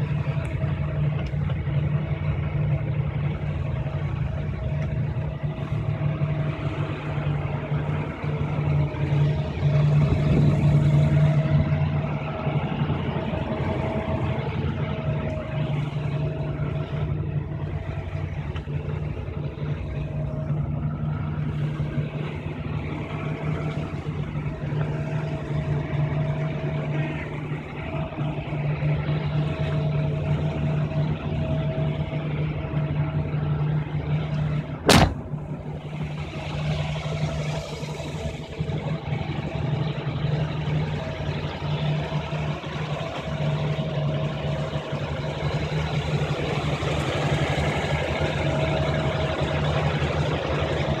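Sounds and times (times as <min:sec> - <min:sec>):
car engine idling: 0:00.0 - 0:51.0
sharp bang: 0:34.8 - 0:35.6.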